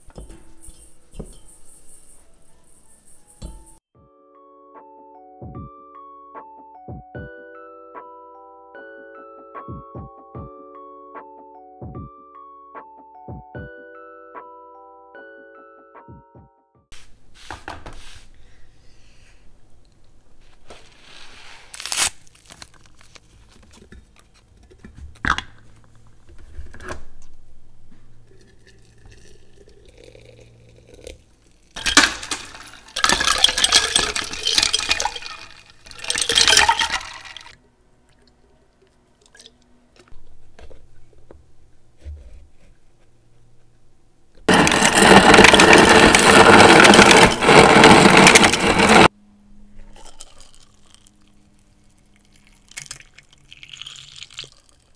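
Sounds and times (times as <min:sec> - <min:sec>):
tea pouring onto ice: 0:28.4 - 0:37.6, 0:44.5 - 0:49.1, 0:49.9 - 0:54.9
glass jars clicking: 0:31.8 - 0:37.5
ice cracking: 0:31.8 - 0:37.6, 0:44.5 - 0:49.1, 0:52.3 - 0:54.9.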